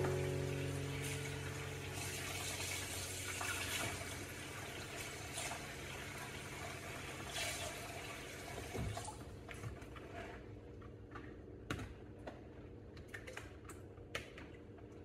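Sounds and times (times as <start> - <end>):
faucet running into bowl: 0.6 - 9.1.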